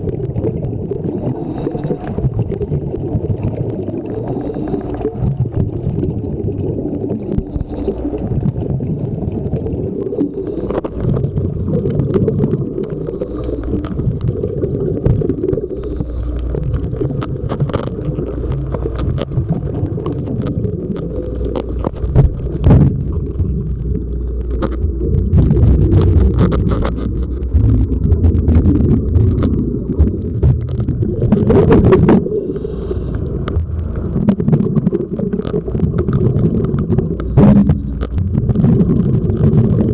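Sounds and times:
exhaled bubbles: 0.0 - 39.9
diver regulator breathing: 1.2 - 2.2, 4.1 - 5.2, 7.2 - 8.5, 10.1 - 11.4, 12.5 - 20.2, 21.0 - 23.4, 24.2 - 35.0, 36.3 - 39.8.

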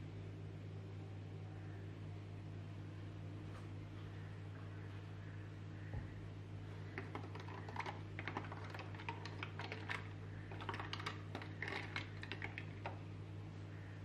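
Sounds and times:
ice cubes clinking in glass: 7.0 - 13.0.

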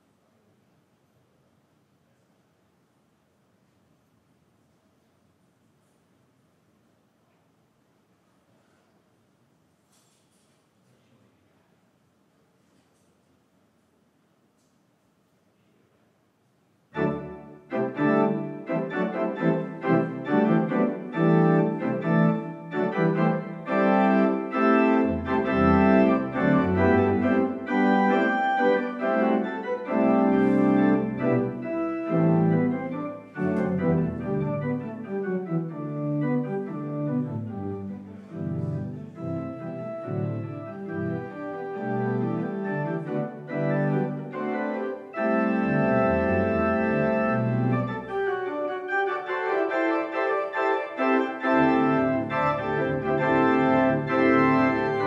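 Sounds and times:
deep organ pedal bass notes: 17.0 - 48.6, 51.0 - 55.0
church organ playing chords: 17.0 - 55.0.

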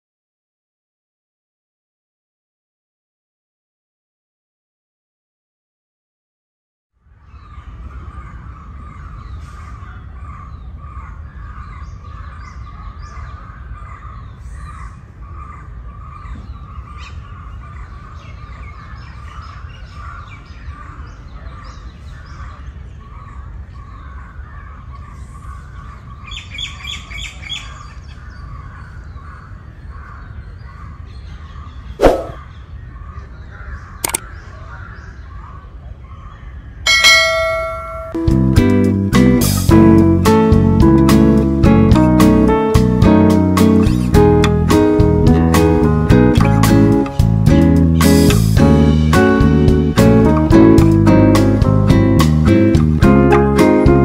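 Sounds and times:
birds chirping and calling: 7.0 - 54.0
high repeated notes: 36.9 - 54.0.

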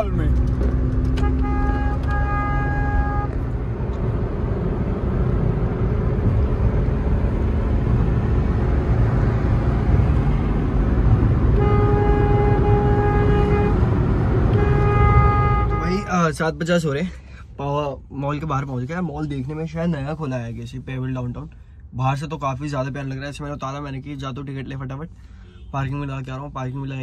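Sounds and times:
car road noise rumble: 0.0 - 27.0
vehicle horns honking: 1.1 - 3.4, 11.5 - 16.3, 25.4 - 25.9.

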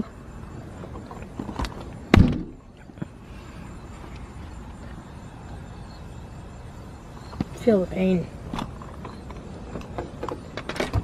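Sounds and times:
loud sudden thump: 2.1 - 2.6.

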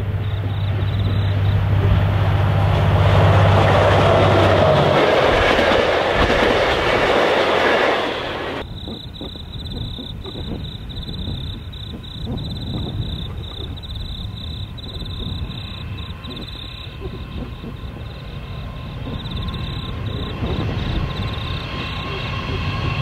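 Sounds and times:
faint low rumble: 0.0 - 3.8
insects chirping: 0.0 - 23.0
locomotive engine drone: 0.0 - 23.0
train wheels rushing on rails: 0.0 - 23.0.

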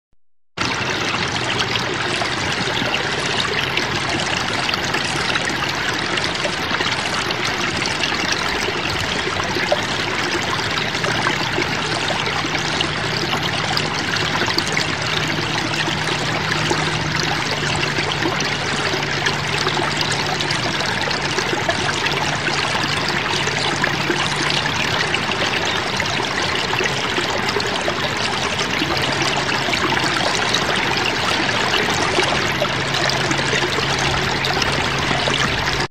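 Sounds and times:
stream water trickling: 0.6 - 35.9.

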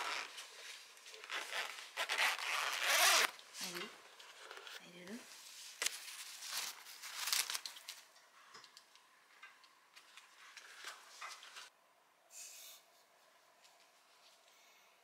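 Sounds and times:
nylon rustling: 0.0 - 3.8, 5.4 - 8.1.

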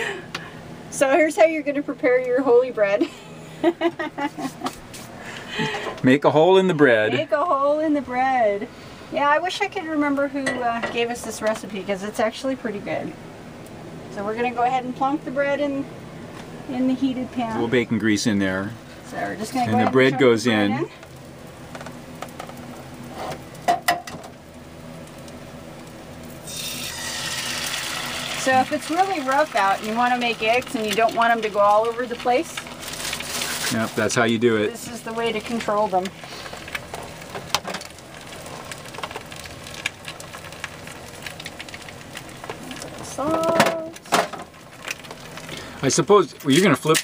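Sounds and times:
bread sizzling in a pan: 0.0 - 47.0
food sizzling in a skillet: 25.2 - 47.0.

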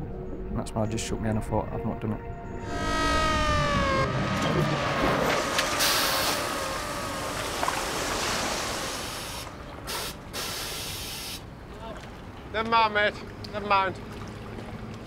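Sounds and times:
slowly falling tones: 2.2 - 8.6
water rushing and splashing: 2.7 - 15.0.

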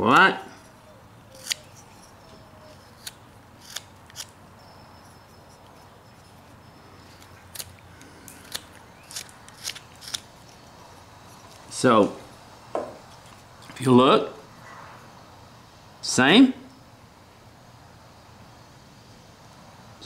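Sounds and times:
knife snicking wood: 1.3 - 4.3, 7.2 - 10.6.

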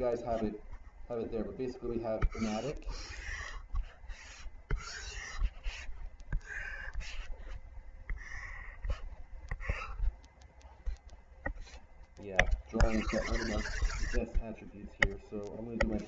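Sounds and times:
stylus scraping strokes: 0.0 - 16.0
stylus tapping on touchscreen: 8.1 - 16.0.

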